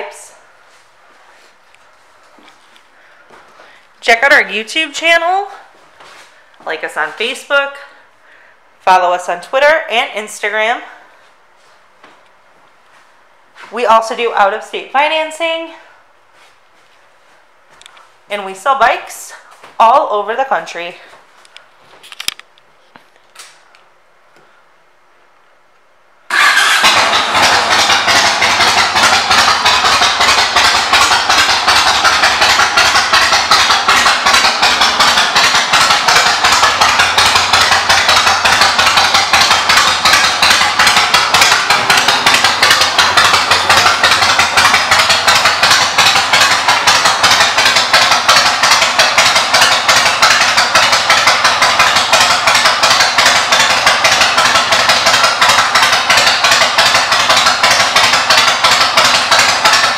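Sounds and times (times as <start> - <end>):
motorcycle engine running: 26.3 - 59.9.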